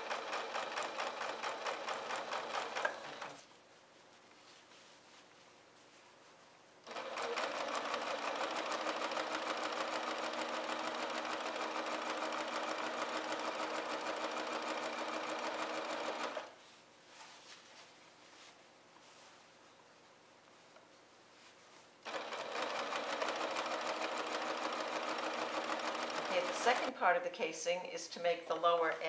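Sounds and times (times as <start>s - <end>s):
sewing machine stitching: 0.0s - 3.4s, 6.9s - 16.6s, 22.0s - 26.9s
faint handling sounds: 3.3s - 6.8s, 16.5s - 22.0s.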